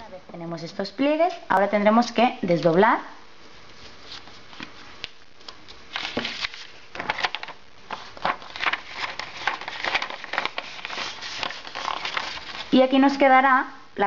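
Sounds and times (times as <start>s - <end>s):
paper rustling and crackling: 3.7s - 13.2s.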